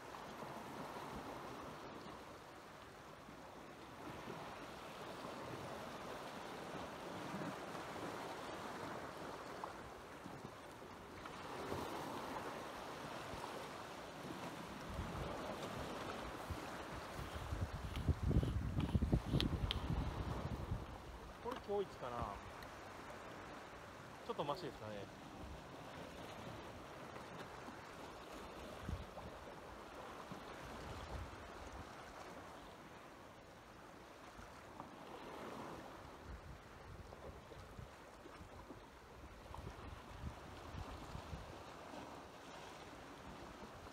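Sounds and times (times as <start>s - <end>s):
small waves washing on rocky shore: 0.0s - 43.9s
wind on microphone: 14.2s - 21.4s, 28.5s - 29.5s, 30.3s - 32.4s, 35.3s - 42.1s.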